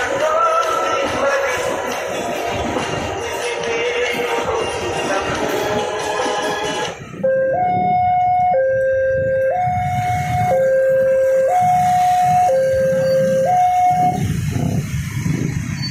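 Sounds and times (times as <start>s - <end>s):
electronic two-tone siren: 6.6s - 14.8s.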